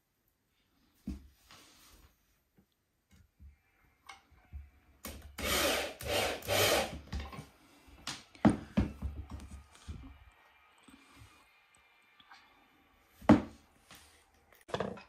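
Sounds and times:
tool biting into wood: 5.4 - 7.0.

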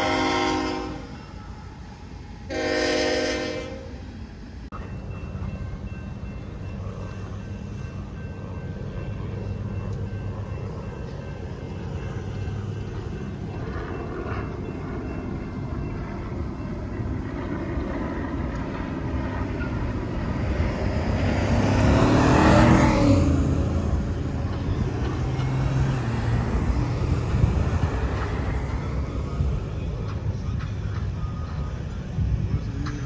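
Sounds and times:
road traffic rumble: 0.0 - 33.0
vehicle passing close: 20.5 - 24.2.

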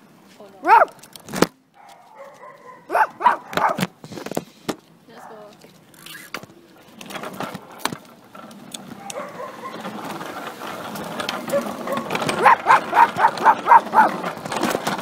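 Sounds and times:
dog barking: 0.6 - 0.9, 1.8 - 3.8, 9.0 - 9.8, 11.5 - 14.2.

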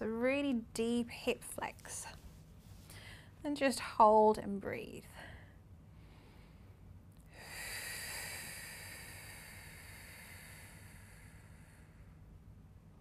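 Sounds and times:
slow breathy exhale: 6.0 - 12.2.

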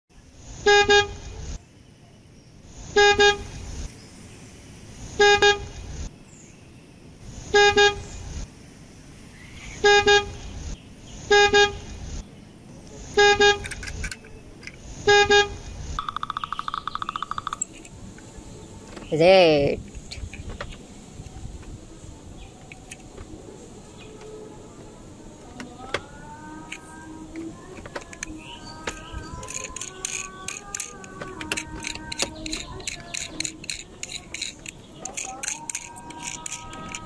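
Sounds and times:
toy car horn beeping: 0.7 - 1.3, 3.0 - 3.6, 5.2 - 5.7, 7.6 - 8.1, 9.8 - 10.4, 11.3 - 11.9, 13.2 - 14.2, 15.1 - 16.3, 26.5 - 37.0
fast buzzing rattle: 16.0 - 17.8, 28.0 - 37.0.

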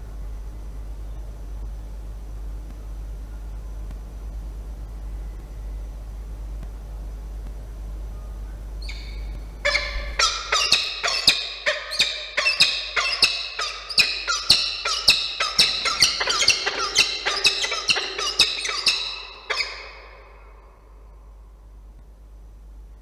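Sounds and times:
falcon calling rapidly: 8.8 - 21.0.

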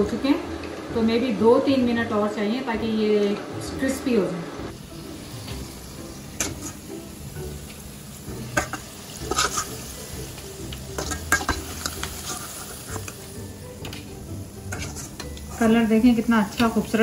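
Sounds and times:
food deep-frying in oil: 4.7 - 17.0
wire strainer scraping a pot: 6.4 - 6.8, 8.5 - 9.8, 10.9 - 15.9.

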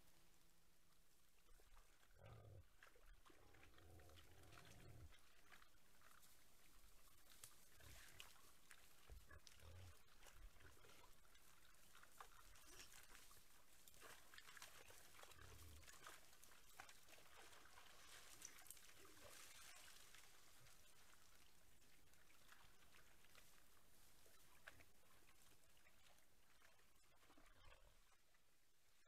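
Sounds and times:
splashing and shuffling in mud: 1.5 - 28.3
faint wild boar grunts: 2.1 - 5.2, 9.2 - 11.1.

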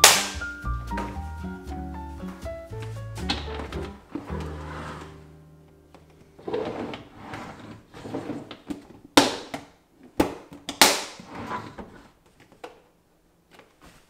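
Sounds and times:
plastic boxes scraping on shelf: 4.1 - 5.2, 6.4 - 8.8, 11.2 - 12.2.

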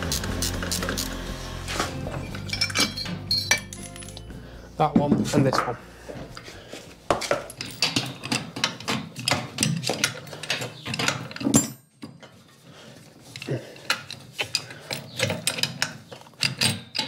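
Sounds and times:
hand tools clicking on bolts: 7.2 - 11.6, 13.3 - 17.0.

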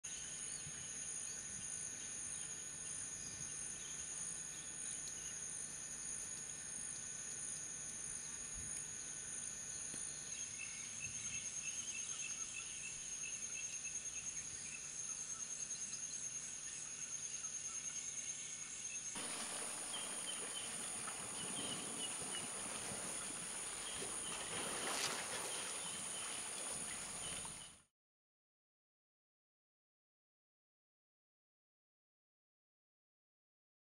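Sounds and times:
insects chirping: 0.1 - 27.8
insects whining: 15.3 - 27.8.

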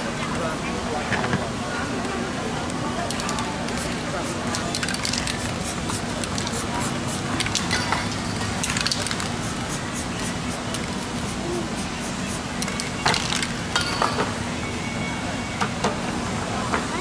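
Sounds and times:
spray paint can hissing: 3.3 - 7.8, 8.6 - 13.5.

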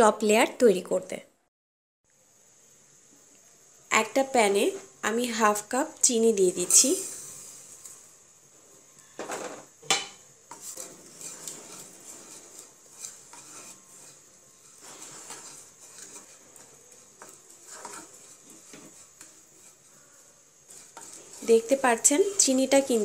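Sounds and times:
wooden spatula scraping a saucepan: 10.5 - 23.0.

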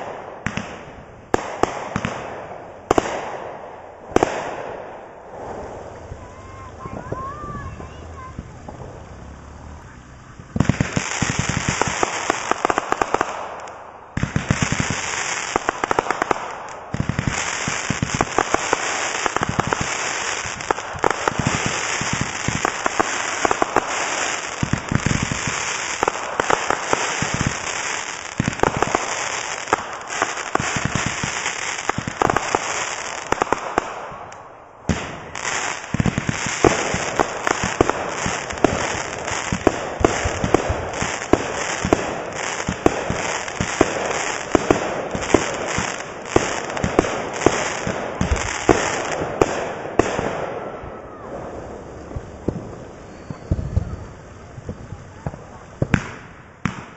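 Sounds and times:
fireworks popping and crackling: 0.0 - 56.9.

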